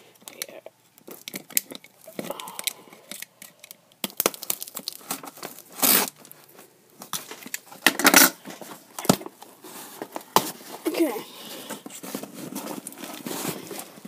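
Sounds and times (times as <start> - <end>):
tape ripping: 4.0 - 6.4.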